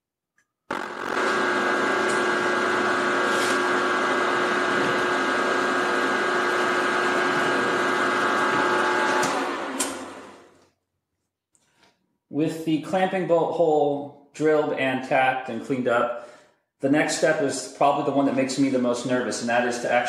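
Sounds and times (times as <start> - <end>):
milling machine motor whine: 0.7 - 10.6.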